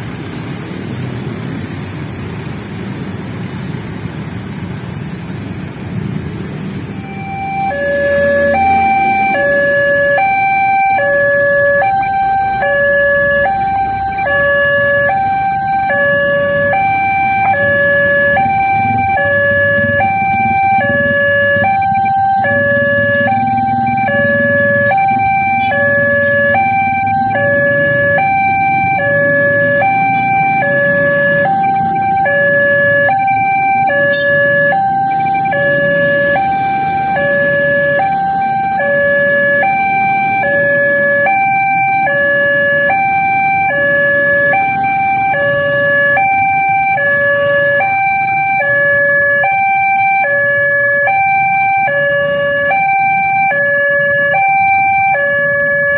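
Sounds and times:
engines idling: 0.0 - 55.9
level crossing two-tone alarm: 7.0 - 55.9.

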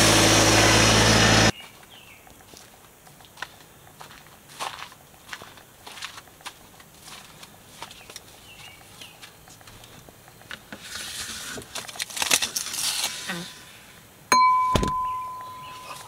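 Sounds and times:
glass ringing ding: 14.3 - 16.0
cooler clunks: 14.4 - 15.3
heavy thump: 14.6 - 15.2.

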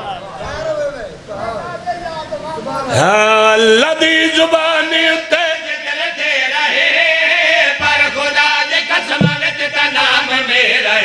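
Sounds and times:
men chanting together: 5.0 - 11.0.

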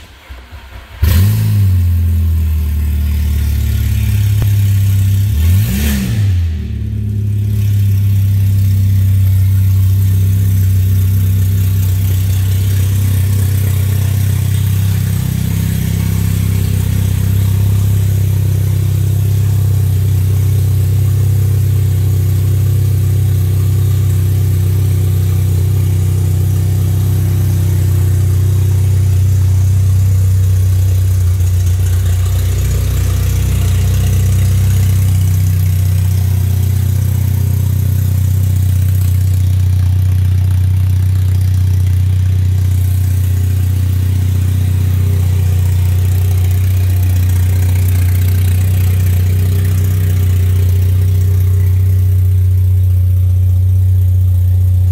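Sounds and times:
car engine idling and revving: 0.0 - 54.9.

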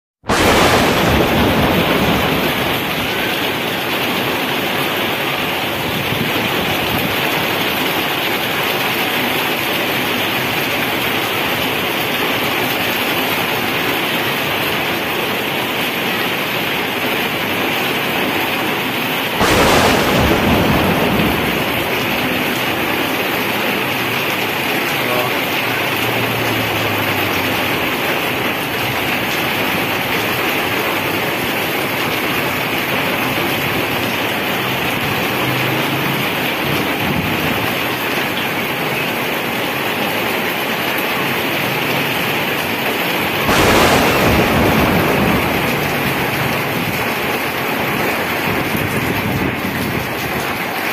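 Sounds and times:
heavy rain on pavement and cars: 0.2 - 50.9
sudden loud crash: 0.3 - 3.6, 19.4 - 23.3, 43.5 - 48.1.

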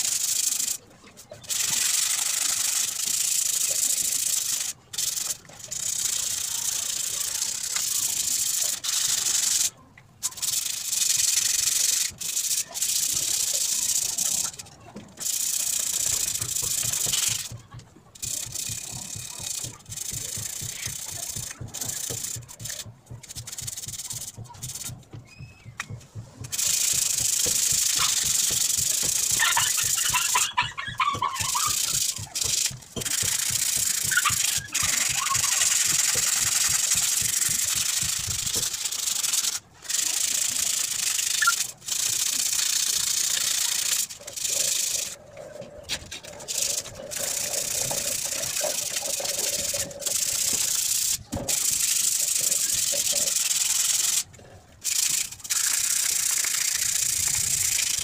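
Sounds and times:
sandpaper rubbing on metal: 15.2 - 17.6, 18.2 - 25.0, 25.8 - 45.2.

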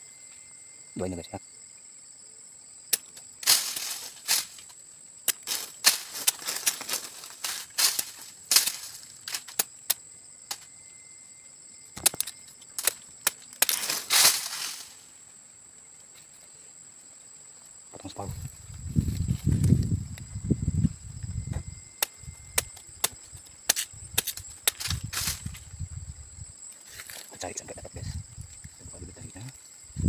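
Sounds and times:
high insect whine: 0.0 - 30.0
rustling scrapes: 3.4 - 4.7, 5.5 - 9.6, 13.7 - 15.1
machete knocking on stalk: 21.6 - 25.4.

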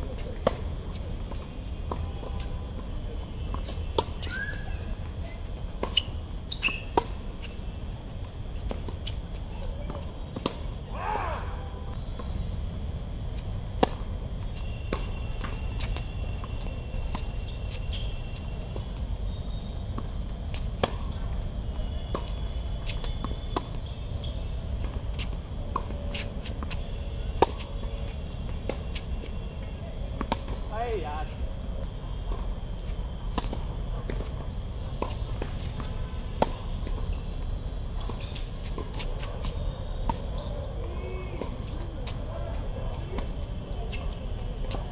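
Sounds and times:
crickets chirring: 0.0 - 44.9
tennis balls struck by rackets: 13.6 - 14.2, 20.0 - 21.2, 24.8 - 31.6, 33.2 - 37.2.

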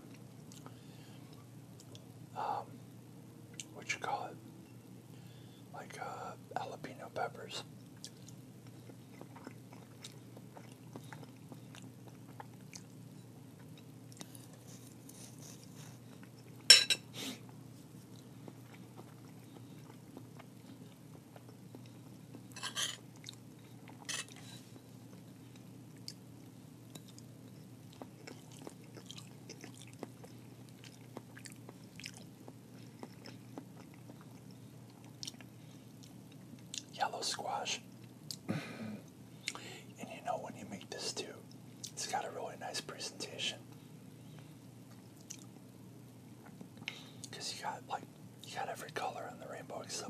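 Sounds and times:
steady low hum: 0.0 - 50.0
close chewing with mouth clicks: 0.1 - 2.1, 7.9 - 13.0, 17.5 - 24.4, 26.9 - 37.0, 44.8 - 45.6.

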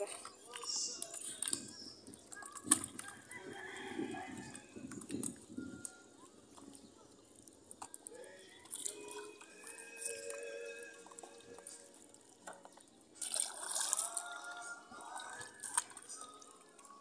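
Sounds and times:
water splashing and dripping: 0.0 - 17.0
background music: 3.6 - 17.0.

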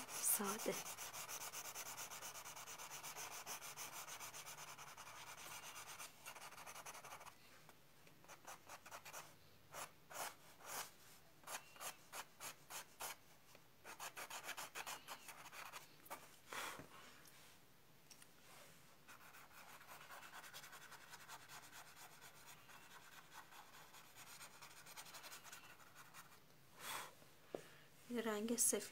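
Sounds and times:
pencil scratching on board: 0.0 - 7.4, 8.2 - 13.2, 13.8 - 16.2, 19.1 - 26.4.

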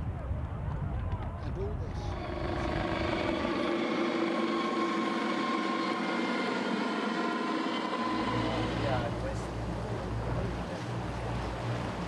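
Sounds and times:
helicopter whine: 0.8 - 12.0
helicopter rushing noise: 1.2 - 9.8.

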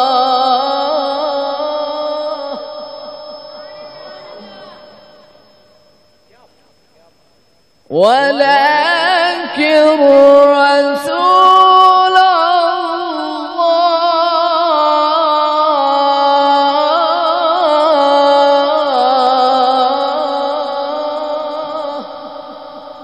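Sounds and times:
man reciting melodically: 0.0 - 2.8, 7.9 - 23.0.

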